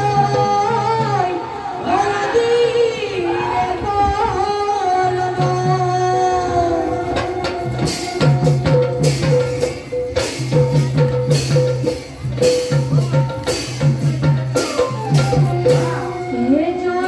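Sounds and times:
hand-drum strokes: 6.8 - 17.0.

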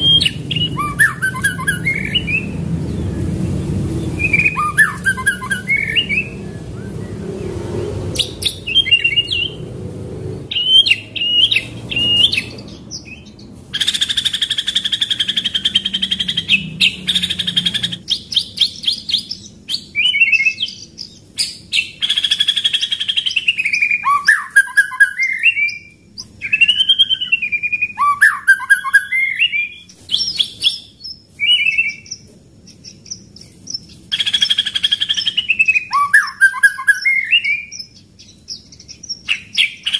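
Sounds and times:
bird whistling song: 0.0 - 9.7, 10.5 - 39.9
rapid rolling bird trill: 0.0 - 39.9.

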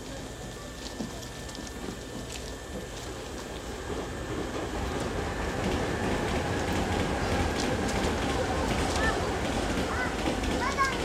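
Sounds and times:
electric train low rumble: 0.0 - 11.0.

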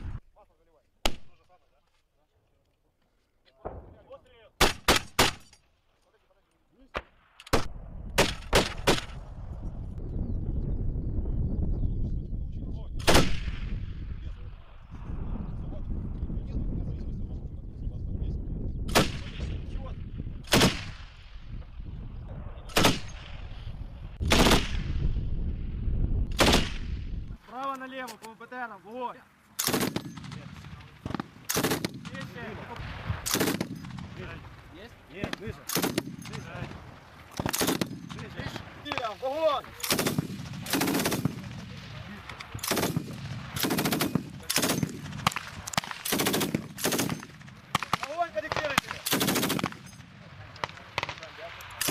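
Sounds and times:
gunshot echoes: 13.0 - 13.8, 22.7 - 23.6, 26.3 - 27.1
machine gun firing bursts: 29.6 - 30.3, 31.5 - 32.2, 33.2 - 34.0, 35.7 - 36.2, 37.4 - 38.1, 39.8 - 41.6, 42.6 - 49.9.

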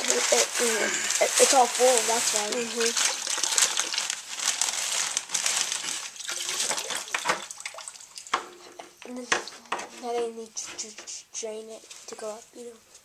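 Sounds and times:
water moving in pit: 0.0 - 4.6
plastic sheeting crinkling: 0.0 - 8.2.

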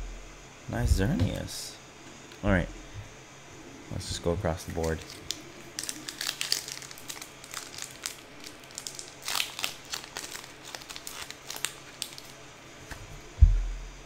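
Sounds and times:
dull low thump: 0.0 - 1.3, 13.4 - 14.0
foil wrapper crinkling: 4.8 - 12.5.

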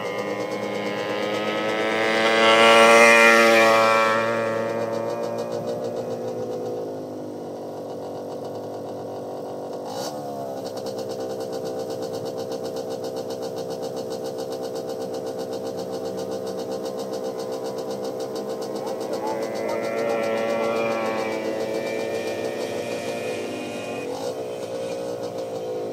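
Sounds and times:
car engine running: 0.0 - 25.9.

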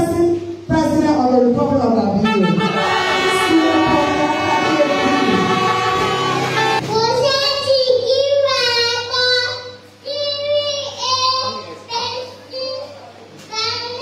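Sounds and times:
music with held notes: 2.6 - 6.8.

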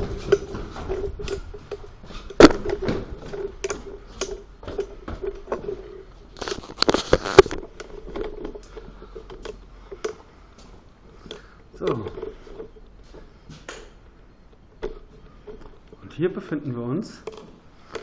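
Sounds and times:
camera rustling against fleece: 5.9 - 9.8.

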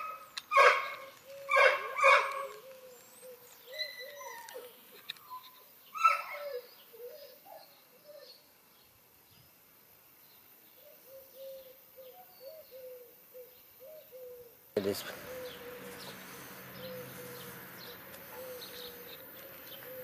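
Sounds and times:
puppy yelping: 0.0 - 2.6, 18.2 - 19.2
puppy whining: 3.7 - 4.7, 18.2 - 20.0.

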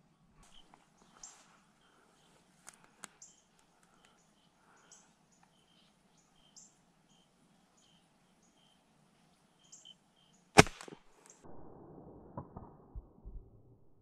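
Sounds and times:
small birds chirping: 0.4 - 10.6
air rifle shot: 10.6 - 11.2.

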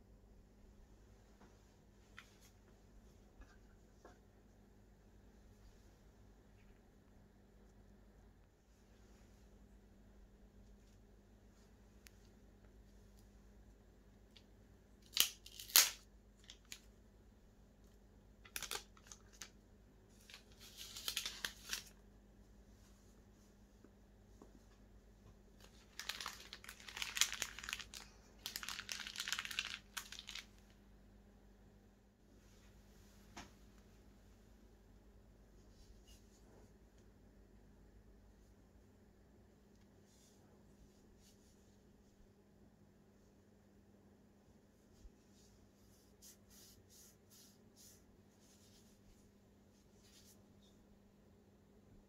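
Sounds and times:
low steady hum: 0.0 - 52.0
plastic film crinkling: 15.0 - 16.9, 18.4 - 22.0, 25.6 - 30.8.

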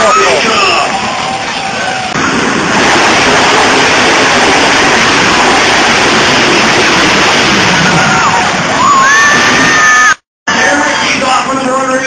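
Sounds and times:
truck engine running loud: 0.4 - 9.7.

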